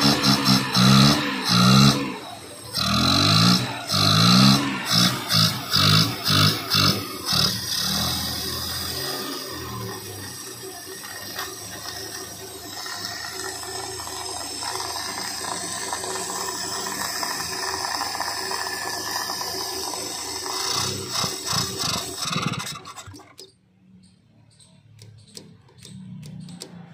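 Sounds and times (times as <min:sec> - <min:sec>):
car engine revving: 0:00.0 - 0:23.2
engine intake rush: 0:00.0 - 0:23.4.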